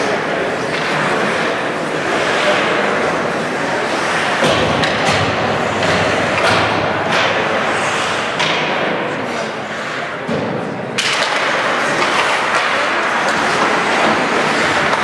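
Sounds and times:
crowd din: 0:00.0 - 0:15.0
skates scraping on ice: 0:00.0 - 0:15.0
sticks and puck knocking: 0:04.1 - 0:09.1, 0:10.2 - 0:15.0.

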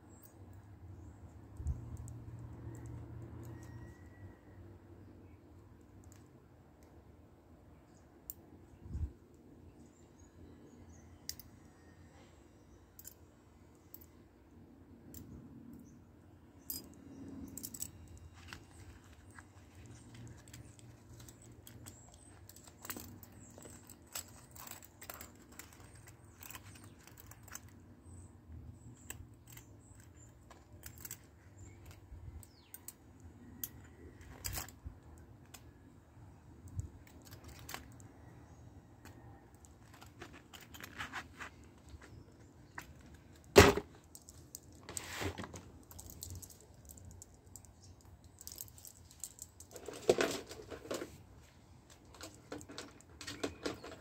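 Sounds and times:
small metallic clicks and clinks: 0:00.1 - 0:04.2, 0:10.9 - 0:11.8, 0:12.9 - 0:14.2, 0:15.0 - 0:41.1, 0:42.6 - 0:45.0, 0:45.6 - 0:51.1.

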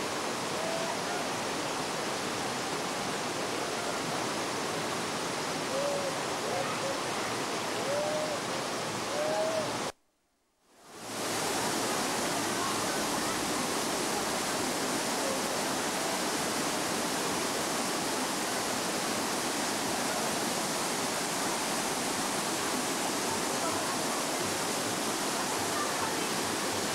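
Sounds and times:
water pouring over cascades: 0:10.9 - 0:26.9.

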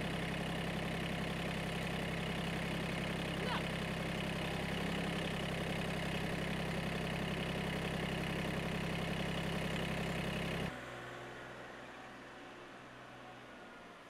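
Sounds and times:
engine idling: 0:00.0 - 0:10.8.

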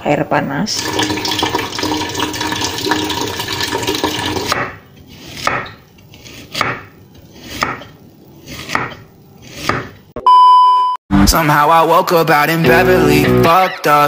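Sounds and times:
tap water running into a pot: 0:00.8 - 0:04.7
knife chopping on a cutting board: 0:04.4 - 0:10.0.

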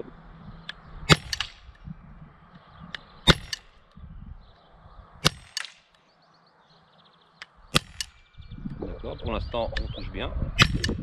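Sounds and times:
air pistol shots popping: 0:00.7 - 0:01.9, 0:02.9 - 0:04.0, 0:05.2 - 0:06.0, 0:07.4 - 0:08.3, 0:10.6 - 0:11.0
pellet clanking on steel target: 0:01.1 - 0:01.7, 0:03.2 - 0:03.8, 0:05.2 - 0:05.9, 0:07.7 - 0:08.2.

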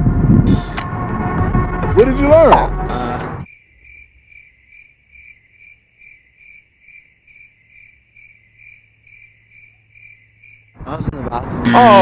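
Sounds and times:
cricket chirping: 0:03.4 - 0:11.4.

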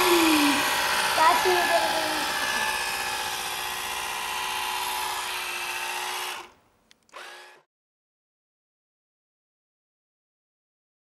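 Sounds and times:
small electric motor whining: 0:00.0 - 0:07.7.

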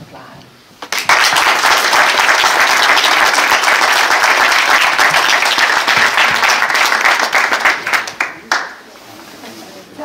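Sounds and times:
crowd applauding: 0:00.8 - 0:08.8.

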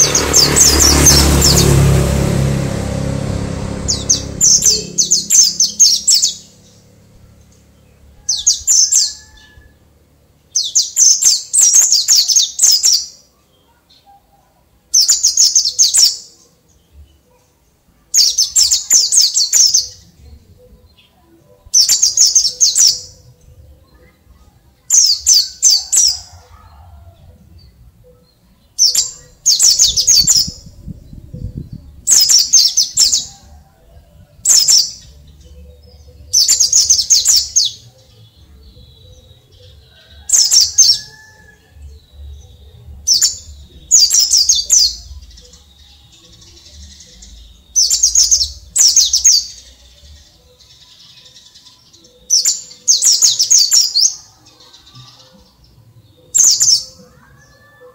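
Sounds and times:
bird chirping twitters: 0:03.8 - 0:09.6, 0:10.4 - 0:14.2, 0:14.9 - 0:17.3, 0:18.2 - 0:26.2, 0:27.6 - 0:33.3, 0:34.4 - 0:41.3, 0:42.0 - 0:55.3.

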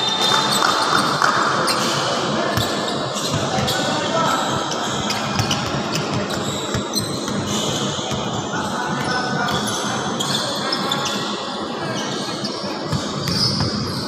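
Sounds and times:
voices in a gym: 0:00.0 - 0:14.0
sneaker squeaks: 0:01.7 - 0:14.0
basketball bouncing on court: 0:05.0 - 0:08.4, 0:12.9 - 0:14.0.

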